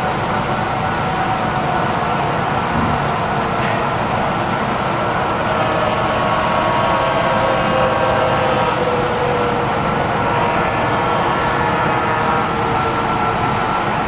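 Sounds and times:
model train locomotives drone: 0.0s - 14.0s.

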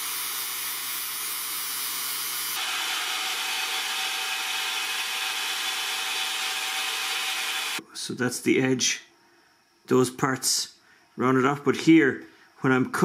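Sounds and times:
machine cutting steel: 2.5s - 7.8s
angle grinder grinding steel: 2.6s - 7.8s.

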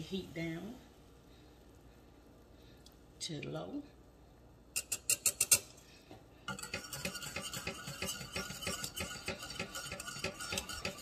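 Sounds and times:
wire whisk scraping metal pan: 4.8s - 5.8s, 6.5s - 11.0s.

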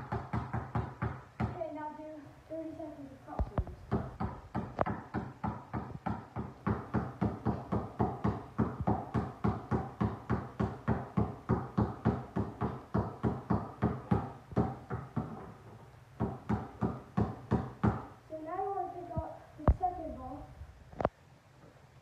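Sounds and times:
basketball bouncing on hard floor: 0.0s - 1.6s, 3.4s - 15.6s, 16.2s - 18.1s.

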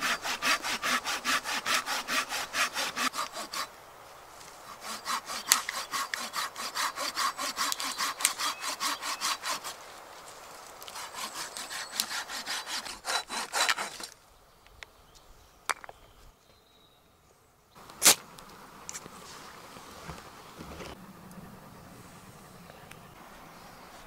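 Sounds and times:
hand saw cutting log: 0.0s - 3.7s, 4.6s - 9.8s, 10.8s - 14.1s.

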